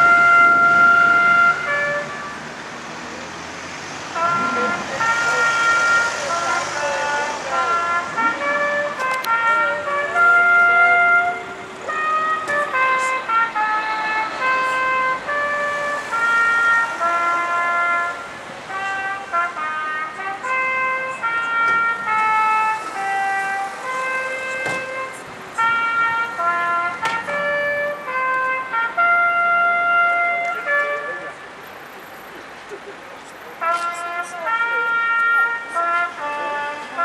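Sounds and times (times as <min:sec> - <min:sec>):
clock tower tune: 0:00.0 - 0:02.5, 0:04.1 - 0:31.6.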